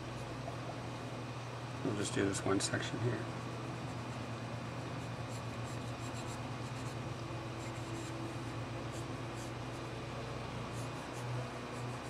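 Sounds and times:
steady low hum: 0:00.0 - 0:12.0
pencil scratching on paper: 0:05.0 - 0:07.0, 0:07.6 - 0:10.0, 0:10.7 - 0:12.0.

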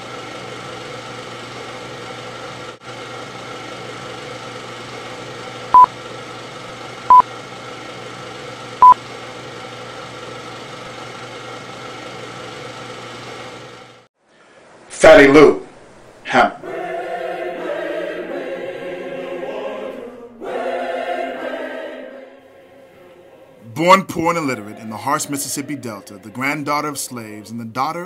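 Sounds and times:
film projector whirring: 0:00.0 - 0:14.1.

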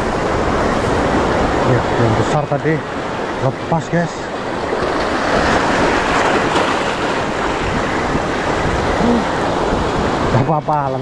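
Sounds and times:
surf washing over rocks: 0:00.0 - 0:11.0
wind on microphone: 0:04.3 - 0:11.0.

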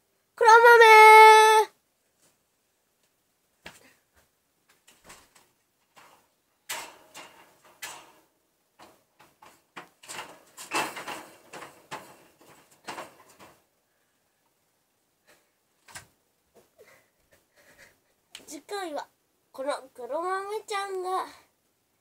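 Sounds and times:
rustling: 0:02.0 - 0:18.6
knocks and clatters: 0:04.7 - 0:13.7.

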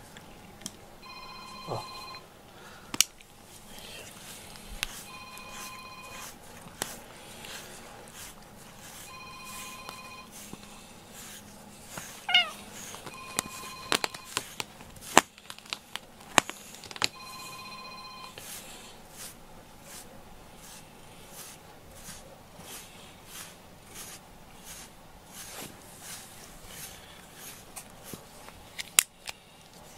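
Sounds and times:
phone ringing: 0:01.0 - 0:02.3, 0:05.0 - 0:06.4, 0:09.1 - 0:10.4, 0:12.3 - 0:14.5, 0:17.1 - 0:18.4
cat meowing: 0:12.2 - 0:12.7.

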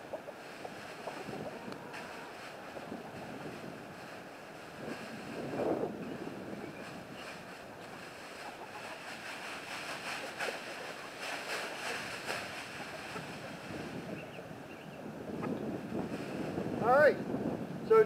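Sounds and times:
wind on microphone: 0:00.0 - 0:18.0
plastic bag rustling: 0:00.4 - 0:14.1.

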